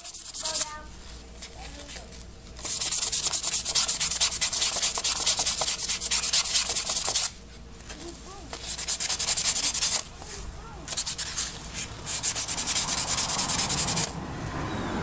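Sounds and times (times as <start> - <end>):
sandpaper scrubbing on metal: 0.0 - 0.8, 2.6 - 7.3, 8.5 - 10.1, 10.8 - 14.1.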